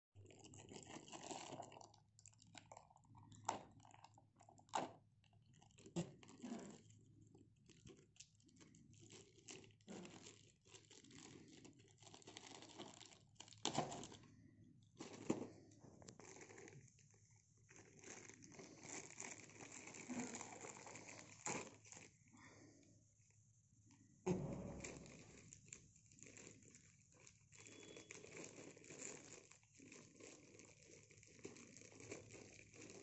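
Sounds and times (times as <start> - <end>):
plastic mailer bag crinkling: 5.5 - 14.4, 15.0 - 22.2, 24.3 - 33.0.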